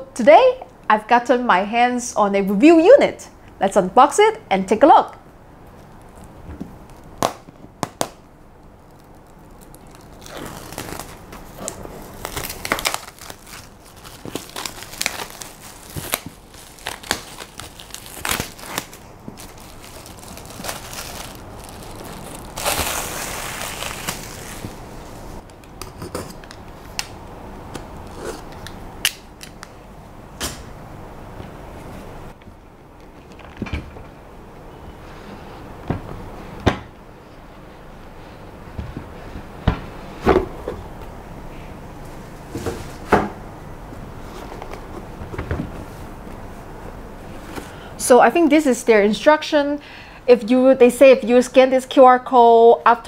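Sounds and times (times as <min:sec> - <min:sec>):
plastic wrapping crinkling and tearing: 0:08.6 - 0:25.5.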